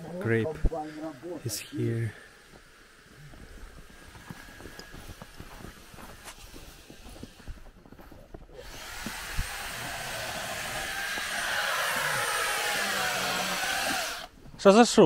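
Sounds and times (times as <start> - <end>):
small motor whirring: 8.5 - 14.4.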